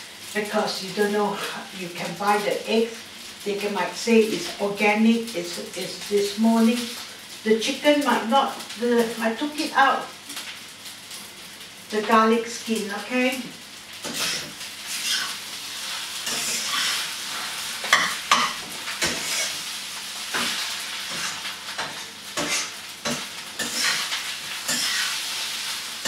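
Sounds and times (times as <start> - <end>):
rice sizzling in a wok: 0.0 - 26.0
metal spatula scraping a wok: 14.0 - 25.9.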